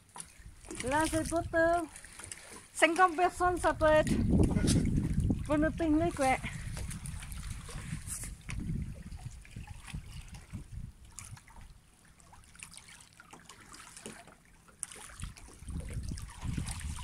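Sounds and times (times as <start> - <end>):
sea water lapping on rocks: 0.0 - 17.0
wind rumble on microphone: 0.4 - 1.9, 3.3 - 11.8, 15.2 - 17.0.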